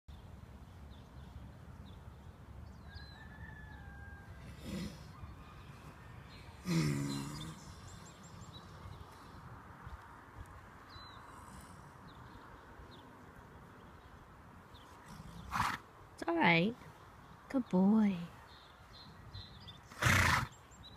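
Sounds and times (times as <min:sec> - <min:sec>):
horse groaning: 0:04.4 - 0:05.2, 0:06.6 - 0:08.2.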